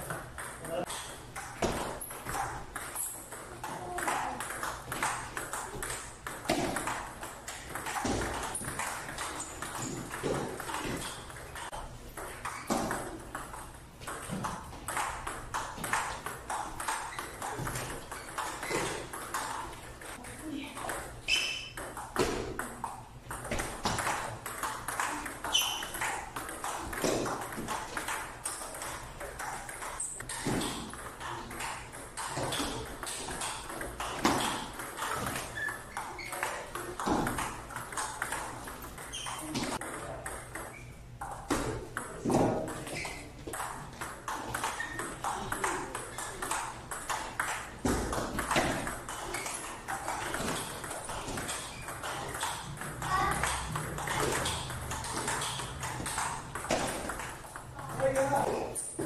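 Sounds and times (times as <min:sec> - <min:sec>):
table tennis ball clicking: 0:21.7 - 0:42.1.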